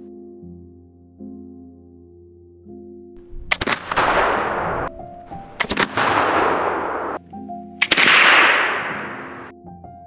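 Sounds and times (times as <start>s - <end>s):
soft background music: 0.0s - 3.8s, 9.5s - 10.0s
rifle shots with echo: 3.2s - 7.2s, 7.8s - 9.5s.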